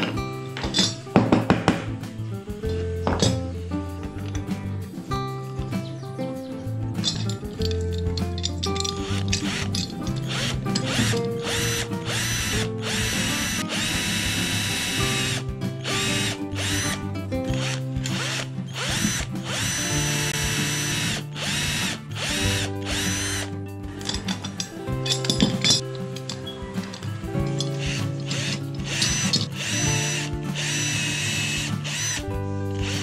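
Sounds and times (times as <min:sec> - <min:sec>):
drill boring into wood: 0:09.0 - 0:24.2, 0:27.6 - 0:33.0.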